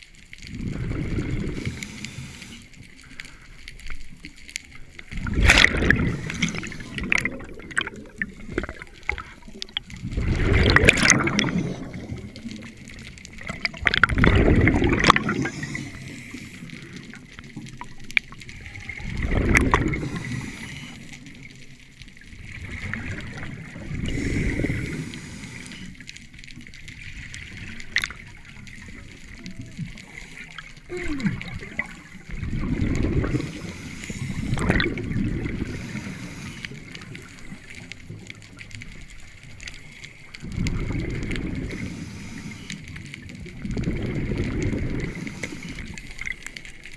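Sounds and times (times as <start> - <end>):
faint clicks: 0.0 - 46.9
regulator bubbling exhalation: 5.2 - 12.7, 13.4 - 16.3, 30.8 - 36.4.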